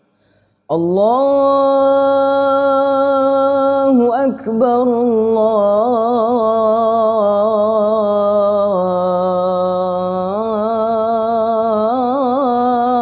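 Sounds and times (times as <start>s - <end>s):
boy chanting call to prayer: 0.7s - 13.0s.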